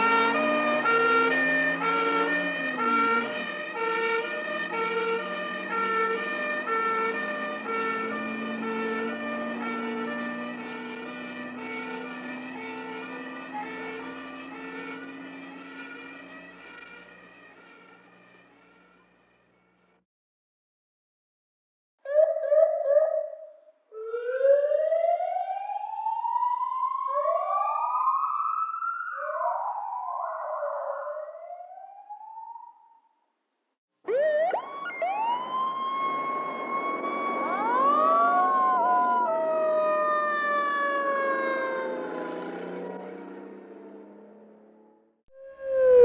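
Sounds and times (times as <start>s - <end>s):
emergency vehicle sirens wailing: 0.0s - 19.9s, 22.1s - 32.9s, 34.0s - 46.0s
traffic rumble: 34.1s - 45.1s.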